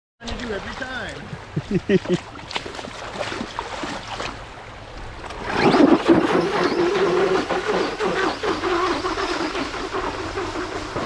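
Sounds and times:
toy truck electric motor whine: 0:05.5 - 0:11.0.

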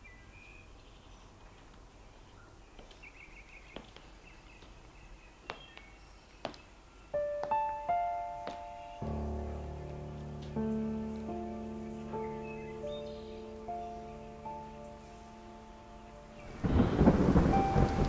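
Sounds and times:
soft piano notes: 0:07.0 - 0:18.0.

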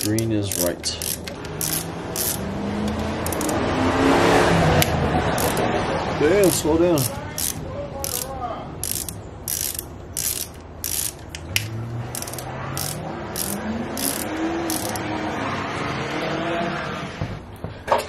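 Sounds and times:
ratchet wrench clicking: 0:00.0 - 0:03.6, 0:04.8 - 0:05.6, 0:06.4 - 0:15.0
car engine revving: 0:01.1 - 0:07.6, 0:09.0 - 0:17.2.

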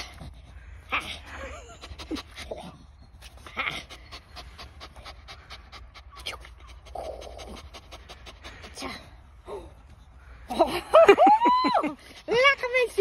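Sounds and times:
dog panting: 0:00.0 - 0:09.3, 0:12.0 - 0:13.0.

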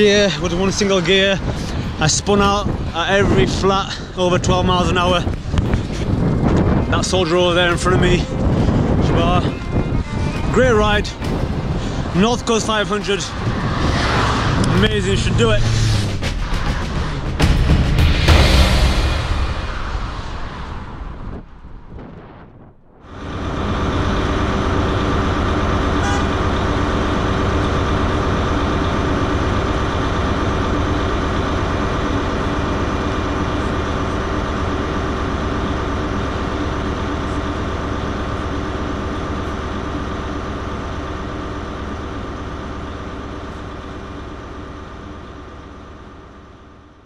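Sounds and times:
diesel train engine idling: 0:00.0 - 0:21.5, 0:23.0 - 0:47.0.

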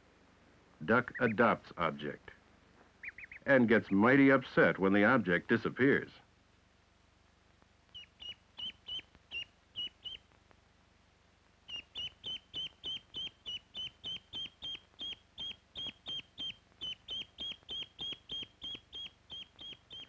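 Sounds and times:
duckling peeping: 0:00.8 - 0:02.1, 0:03.0 - 0:04.1, 0:07.9 - 0:10.4, 0:11.6 - 0:20.0.

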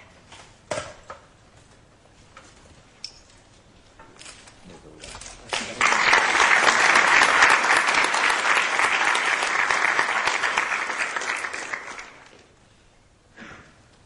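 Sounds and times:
audience applauding: 0:05.5 - 0:12.4.

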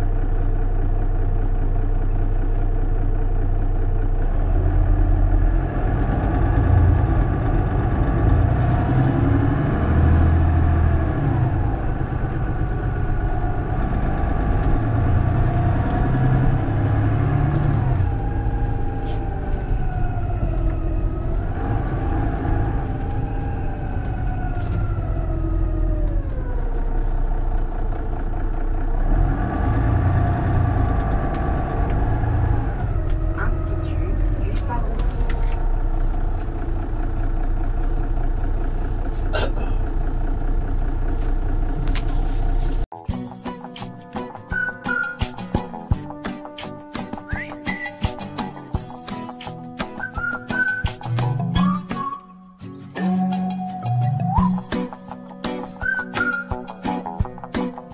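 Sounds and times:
bus diesel engine rumbling: 0:00.0 - 0:57.9
drivetrain whine: 0:00.0 - 0:57.9.

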